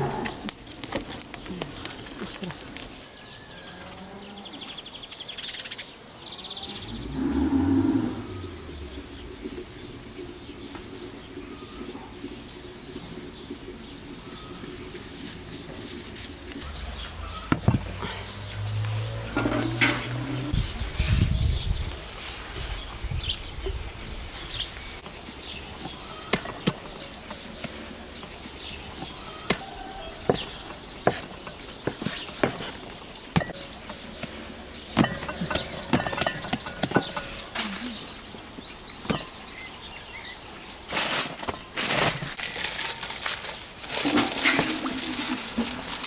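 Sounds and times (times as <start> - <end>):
baking paper crinkling: 0.1 - 3.1, 14.8 - 16.6, 40.9 - 46.0.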